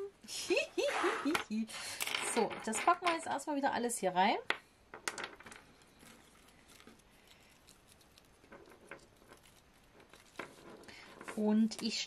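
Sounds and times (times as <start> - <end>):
light clicks of game pieces: 4.5 - 12.0
faint rustling: 5.3 - 12.0.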